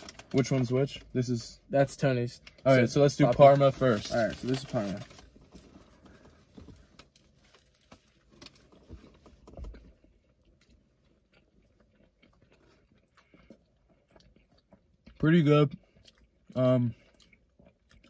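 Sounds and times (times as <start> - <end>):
chewing and biting sandwich: 4.0 - 18.0
small crunches and mouth clicks: 4.0 - 18.0.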